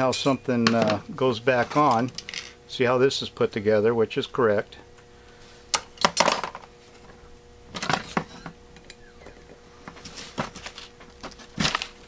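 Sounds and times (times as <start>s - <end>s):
metal tools clinking on workbench: 0.0s - 1.0s
faint steady hum: 0.0s - 12.0s.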